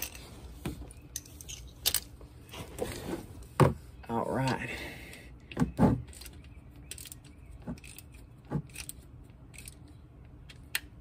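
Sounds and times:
metal wrench clinking and scraping: 0.0 - 0.4, 1.0 - 2.2.

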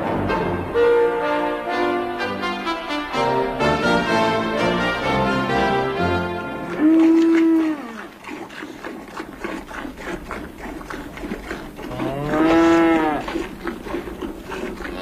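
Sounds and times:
soft rhythmic milk squirts: 6.4 - 15.0
cow mooing: 6.7 - 8.1, 11.8 - 13.5, 14.7 - 15.0.

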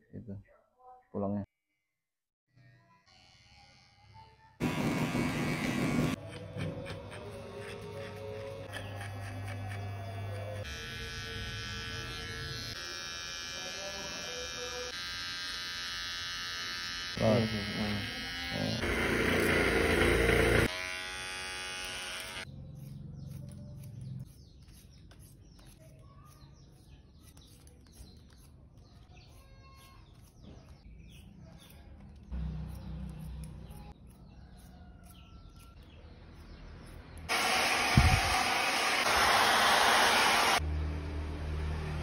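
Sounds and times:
hair clipper buzzing: 3.1 - 6.2, 8.6 - 22.5, 37.3 - 40.6
faint bird chirps: 22.6 - 37.0
hair dryer blowing: 37.3 - 40.6.

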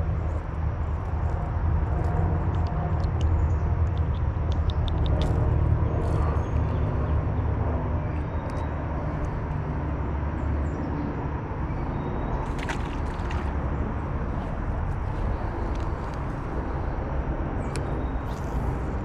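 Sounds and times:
low outdoor rumble: 0.0 - 19.0
fish splashing into water: 12.4 - 13.8.

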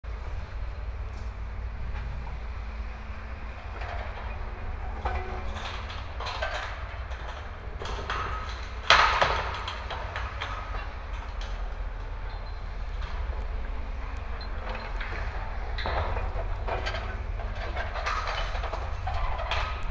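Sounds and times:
excavator engine rumbling: 0.0 - 19.9
loud metal clank: 3.8 - 13.2.

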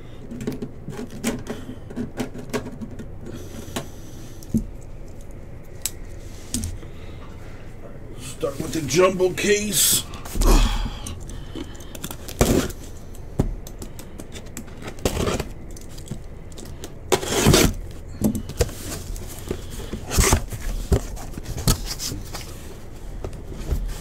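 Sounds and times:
cardboard scrapes and rustles: 17.1 - 17.8.

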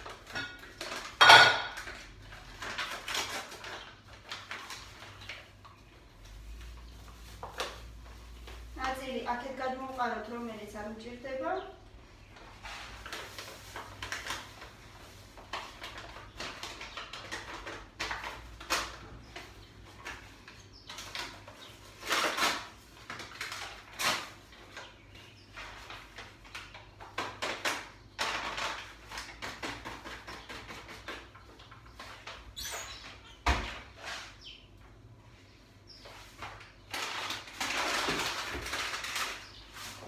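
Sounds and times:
paper bag rustling and crinkling: 12.3 - 29.9, 35.8 - 40.0.

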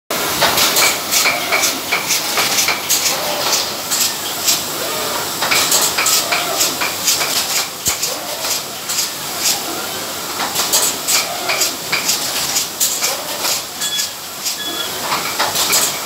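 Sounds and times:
steady machine hiss: 0.2 - 16.0
sharp machine clicks: 0.4 - 4.6.

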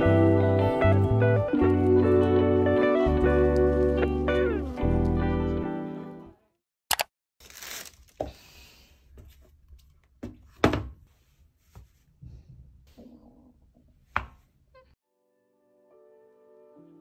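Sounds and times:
tissue paper rustling: 3.2 - 4.8, 7.4 - 8.3.

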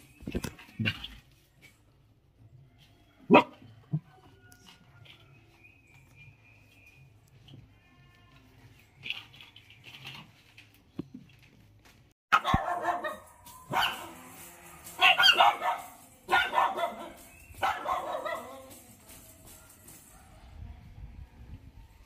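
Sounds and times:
dogs barking: 3.3 - 3.7, 12.3 - 14.2, 15.0 - 18.7.

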